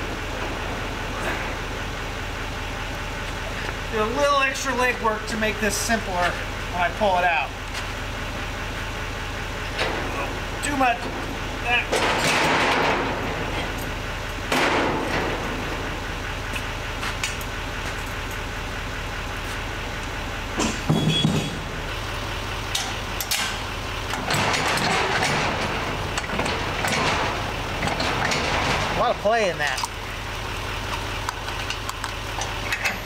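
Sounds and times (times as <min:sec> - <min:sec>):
truck engine idling: 0:00.0 - 0:33.0
trailer tongue and chains rattling: 0:09.7 - 0:18.6, 0:22.5 - 0:33.0
heavy metal clank: 0:11.0 - 0:16.1, 0:24.2 - 0:29.2.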